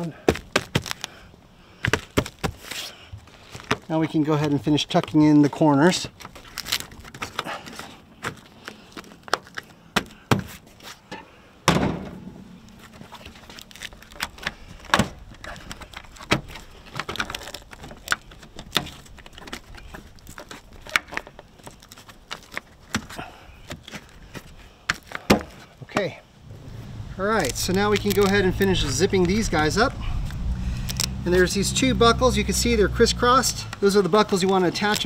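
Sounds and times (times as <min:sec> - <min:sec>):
fabric and plastic clicks and rustles: 0:06.1 - 0:09.8, 0:12.7 - 0:25.6, 0:27.4 - 0:29.4, 0:33.8 - 0:35.0
loud thump: 0:11.6 - 0:13.0.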